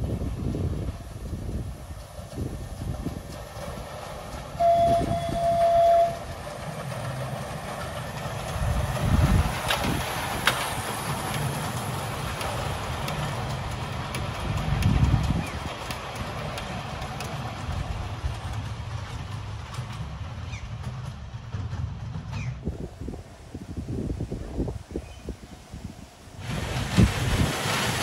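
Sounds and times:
train rumbling past: 0.0 - 28.0
wheels clicking on track: 0.0 - 28.0
train horn: 4.6 - 6.3.

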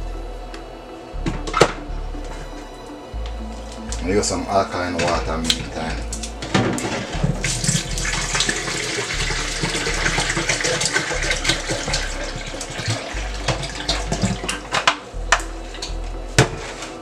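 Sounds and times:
water pouring into a glass pitcher: 6.8 - 14.8.

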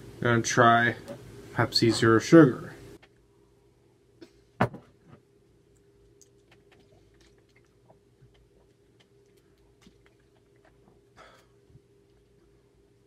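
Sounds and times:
lip-smacking and mouth clicks: 5.7 - 11.1
person drinking from a cup: 6.2 - 12.4.

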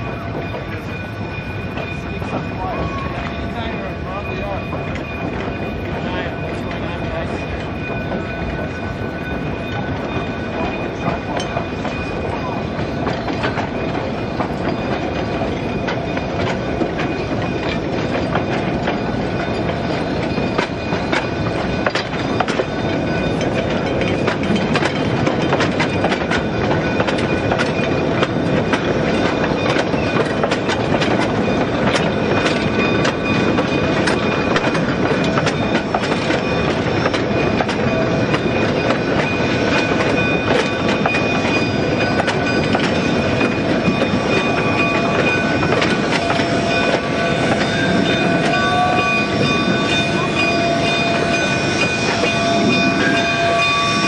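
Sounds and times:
freight cars rumbling on track: 0.0 - 54.0
wheels and couplers clanking: 0.1 - 54.0.

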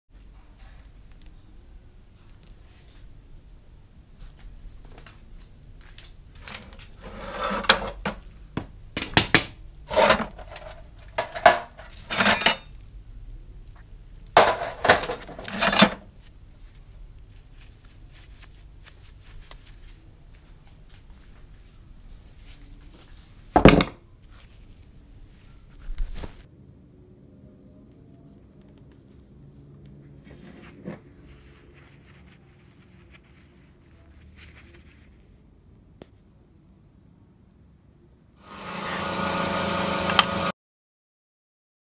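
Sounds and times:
hammer scraping on workbench: 7.0 - 8.2, 9.9 - 12.7
scrap metal clanking in bucket: 9.9 - 12.8, 14.4 - 16.0.

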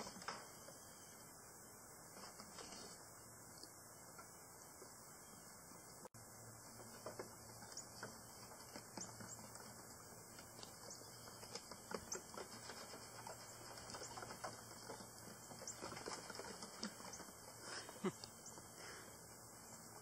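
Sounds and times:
hooves clattering on wooden planks: 6.5 - 20.0.

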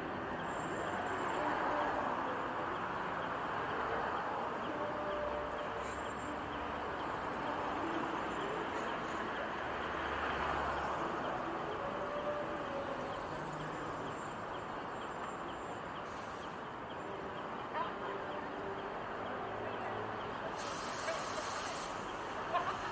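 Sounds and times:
cars driving past: 0.0 - 22.9
murmur of voices: 10.9 - 22.9.

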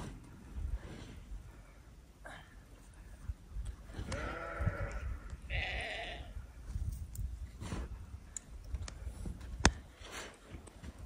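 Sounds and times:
sheep bleating: 4.1 - 6.3.

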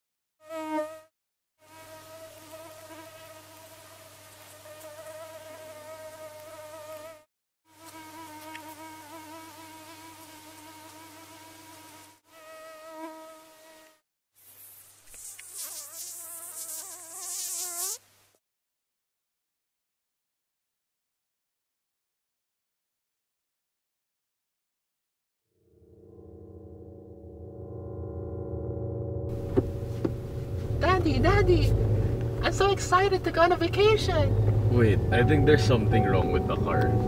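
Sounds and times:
mosquito whining: 4.6 - 14.0, 15.1 - 18.0
hiss: 14.4 - 18.1.

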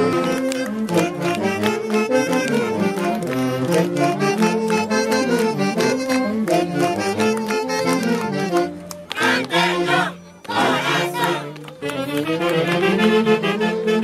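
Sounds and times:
saxophone melody: 0.0 - 14.0.

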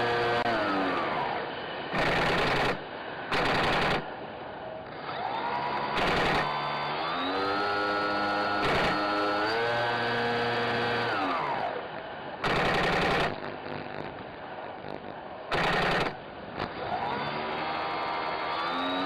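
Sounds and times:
rc plane motor whine: 0.0 - 2.7, 4.9 - 11.9, 14.9 - 19.0
airsoft machine-gun fire: 1.9 - 4.1, 5.9 - 6.6, 12.4 - 14.0, 15.5 - 16.2.

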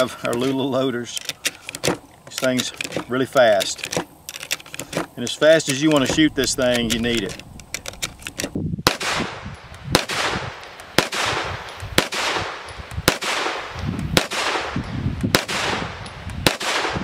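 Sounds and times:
pistol shots with echo: 8.9 - 17.0.

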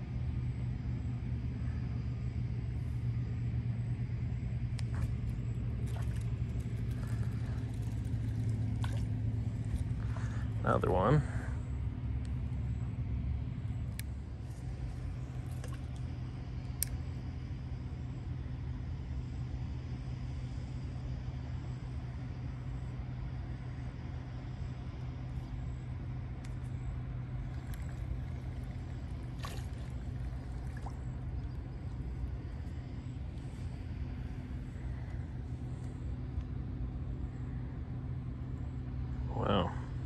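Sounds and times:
low mechanical hum: 0.0 - 40.0
rumble: 0.0 - 40.0.

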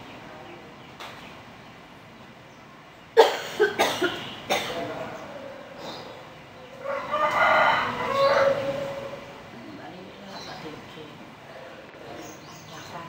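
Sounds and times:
person coughing: 3.2 - 4.9
rooster crowing: 6.6 - 9.4.

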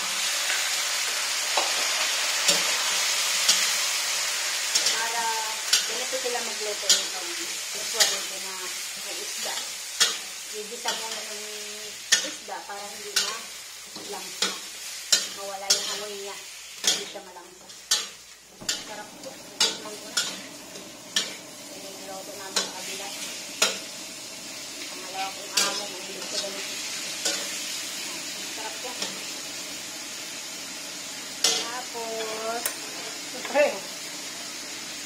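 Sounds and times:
fish sizzling in oil: 0.0 - 35.0
metal spatula scraping a wok: 12.0 - 21.4, 24.8 - 29.3.

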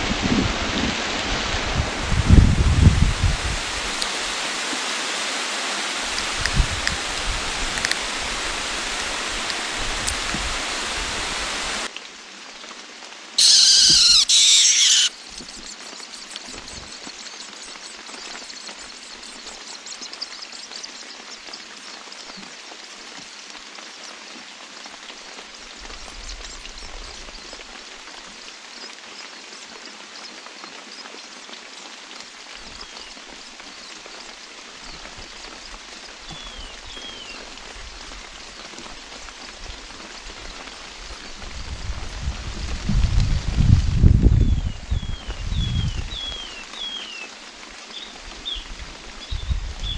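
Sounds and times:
steady rain: 0.0 - 49.9
faint falling whistles: 13.4 - 15.1
loud harsh burst: 13.4 - 15.1.

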